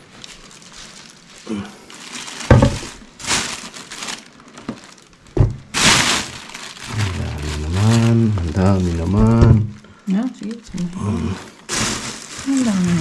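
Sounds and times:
rubbish bags crinkling: 0.0s - 9.8s, 10.4s - 13.0s
sharp knocks and clatters: 2.5s - 2.9s, 5.4s - 5.7s.

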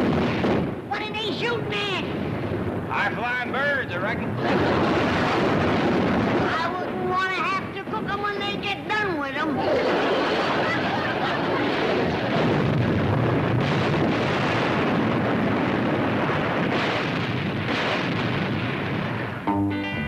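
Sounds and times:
guns firing and shells exploding: 0.0s - 0.8s, 4.4s - 6.6s, 11.1s - 19.4s
music: 19.5s - 20.0s.

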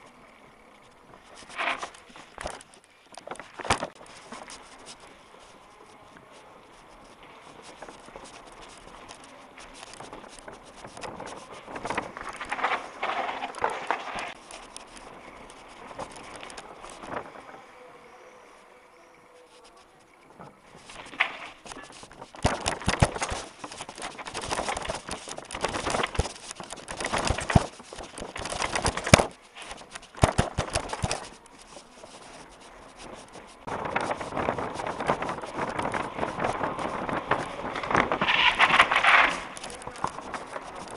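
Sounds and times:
bike rattling over cobbles: 0.0s - 40.9s.

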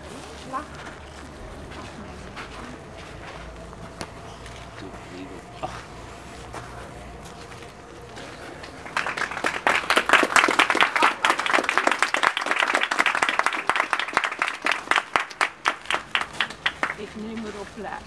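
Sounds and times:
people applauding: 8.1s - 17.3s.

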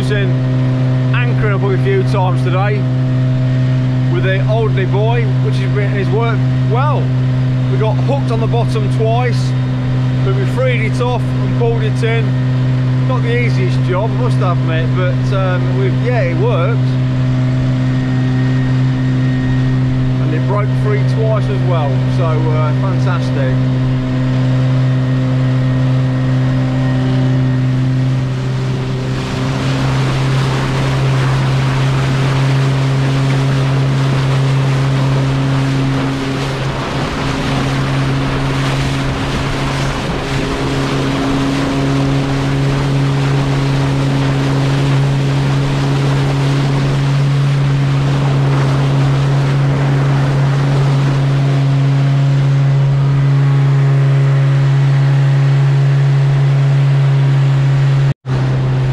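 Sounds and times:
motorboat engine running: 0.0s - 58.9s
water rushing along hull: 0.0s - 58.9s
wind on microphone: 0.0s - 58.9s.

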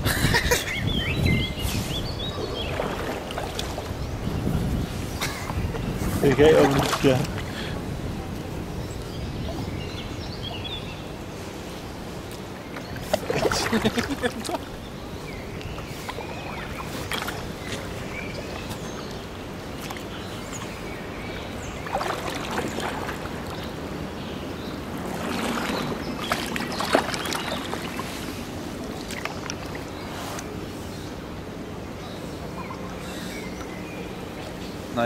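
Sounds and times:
water lapping around boat hull: 0.0s - 34.9s
splashes and knocks: 2.6s - 4.0s, 6.3s - 7.5s, 12.7s - 14.7s, 15.7s - 17.9s, 21.8s - 23.8s, 24.9s - 29.9s.

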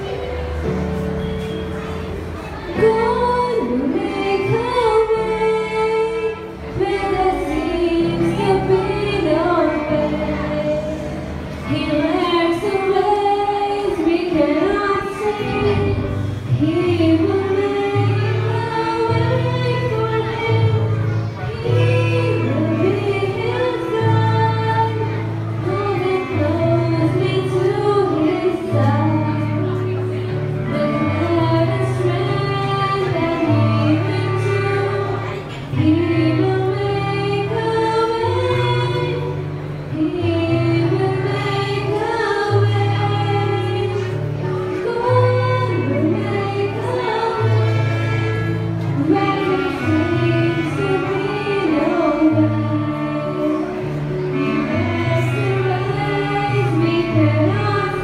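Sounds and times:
clarinet: 0.0s - 58.0s
girl singing into microphone: 0.0s - 58.0s
violin: 0.0s - 58.0s.

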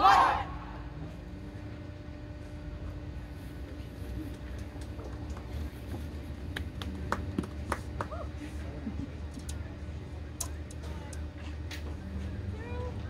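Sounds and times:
faint voices: 5.6s - 13.0s.

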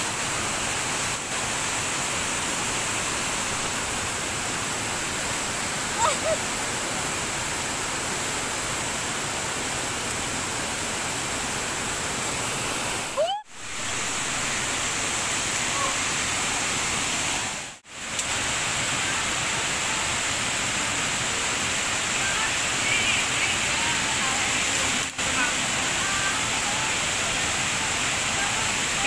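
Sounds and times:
waterfall rushing: 0.0s - 29.0s.

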